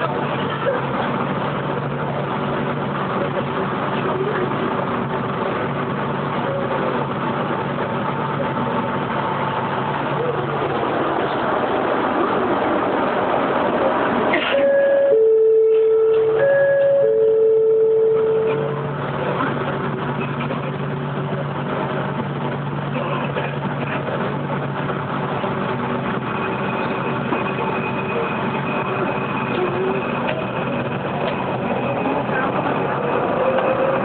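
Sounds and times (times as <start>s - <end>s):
train running with low hum: 0.0s - 34.0s
two-pitch signal tone: 14.5s - 18.7s.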